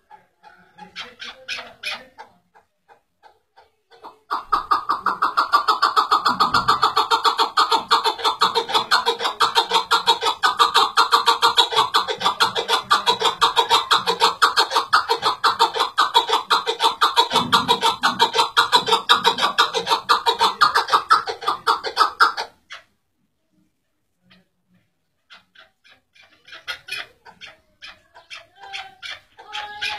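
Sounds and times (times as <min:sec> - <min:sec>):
partridge clucking call: 0:00.0 - 0:22.9, 0:25.2 - 0:29.9.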